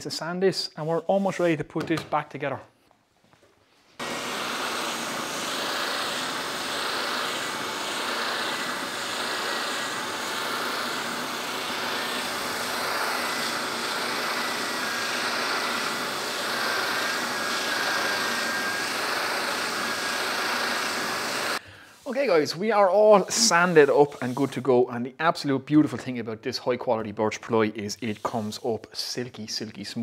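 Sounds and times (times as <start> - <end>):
spindle sander sanding wood: 4.0 - 24.6.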